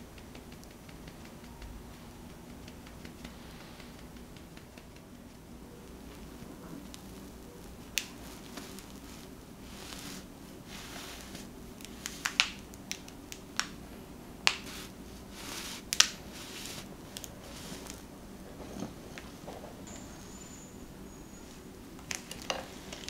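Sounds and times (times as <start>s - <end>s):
chocolate crackling and snapping: 0.0s - 9.6s, 11.2s - 18.1s, 21.9s - 23.0s.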